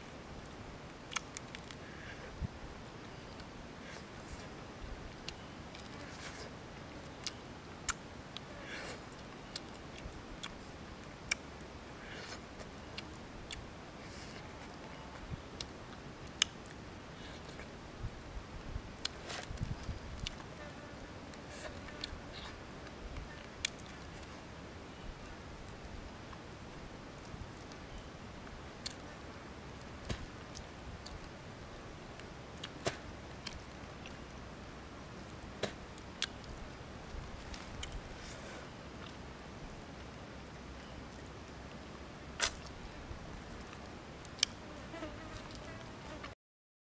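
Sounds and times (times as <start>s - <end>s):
faint steady hiss: 0.0s - 46.4s
mouth clicks and smacks: 1.1s - 2.2s, 35.6s - 36.6s, 42.4s - 42.8s
soft noisy bites or slurps: 7.2s - 10.7s, 11.3s - 16.6s, 42.4s - 42.8s.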